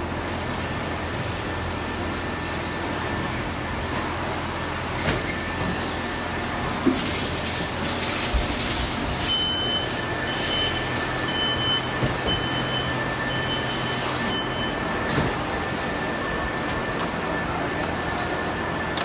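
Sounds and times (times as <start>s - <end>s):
machine hum and hiss: 0.0s - 19.0s
high electronic warning beep: 9.2s - 18.4s.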